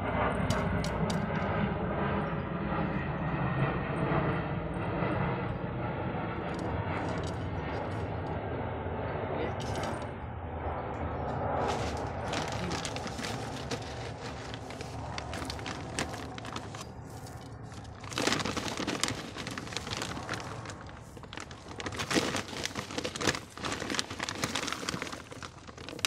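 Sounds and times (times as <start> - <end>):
plastic bag crinkling: 9.6 - 10.0, 11.6 - 26.0
gravel grains rattling: 11.6 - 26.0.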